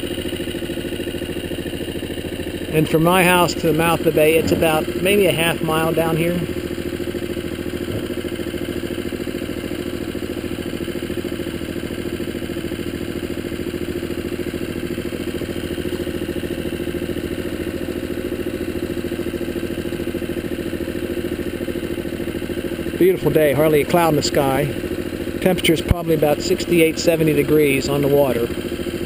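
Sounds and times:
small outboard motor running: 0.0 - 29.0.

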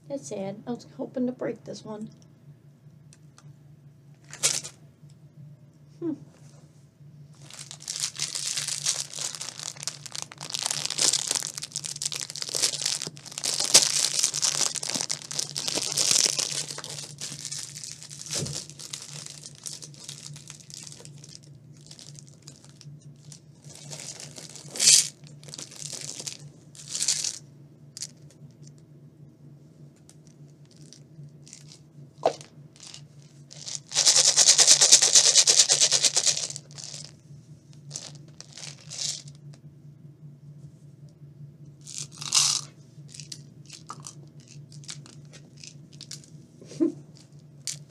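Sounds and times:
candy wrapper crinkling and tearing: 7.4 - 27.4, 30.2 - 37.1, 37.9 - 39.3, 41.8 - 46.4
plastic packet rustling: 7.4 - 27.4, 30.3 - 37.1, 37.9 - 39.4, 41.8 - 46.4, 47.2 - 47.9.

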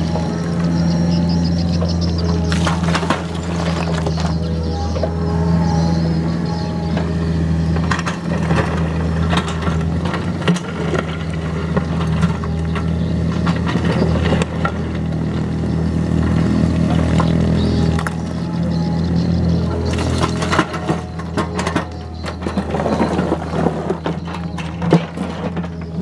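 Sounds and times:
excavator diesel engine running: 0.0 - 26.0
rocks clattering and knocking: 2.5 - 4.4, 19.9 - 26.0.

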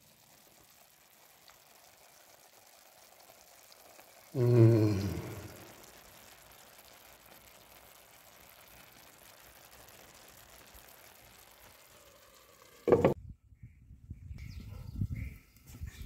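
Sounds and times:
food sizzling: 0.0 - 13.2
loud thump: 12.9 - 13.2.

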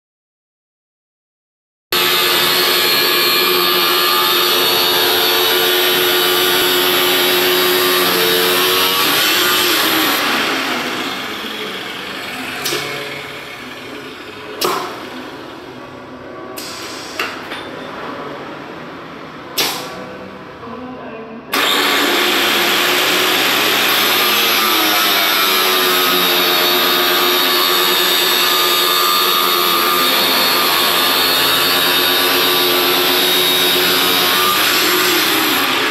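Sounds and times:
cut-off wheel grinding steel: 2.0 - 15.7, 21.5 - 35.9
motor running: 2.0 - 15.7, 21.5 - 35.9.

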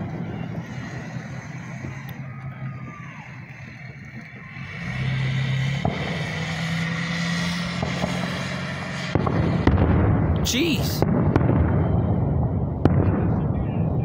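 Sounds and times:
vehicle engine running: 0.0 - 12.8
firework bang: 5.7 - 6.5, 7.7 - 14.0.

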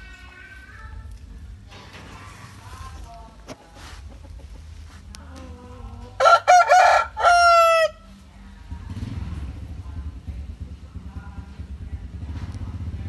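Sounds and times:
rooster crowing: 6.2 - 8.1.

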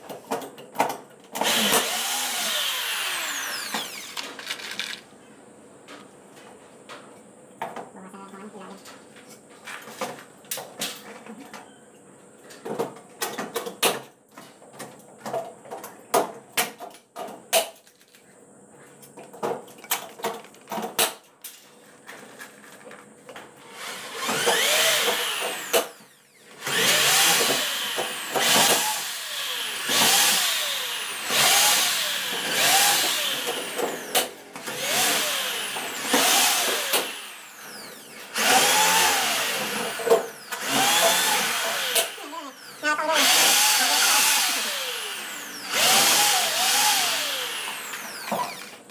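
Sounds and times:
power drill whining in bursts: 1.4 - 4.8, 23.7 - 48.8.

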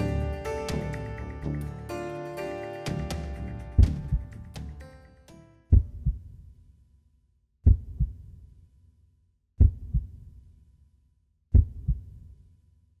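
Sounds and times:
heartbeat thumps: 3.8 - 4.5, 5.7 - 6.4, 7.6 - 8.4, 9.6 - 10.4, 11.5 - 12.3.

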